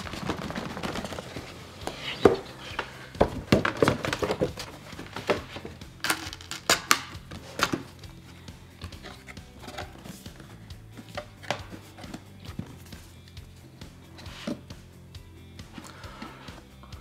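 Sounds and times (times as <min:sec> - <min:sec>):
papery scraping: 0:00.0 - 0:05.8
card tapping and knocking: 0:00.0 - 0:08.0, 0:08.8 - 0:13.1.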